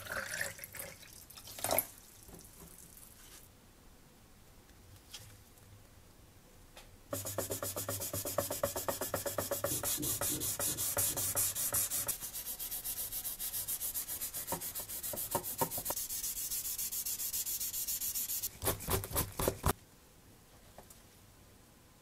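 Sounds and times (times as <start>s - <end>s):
hand rubbing painted metal: 7.1s - 19.7s.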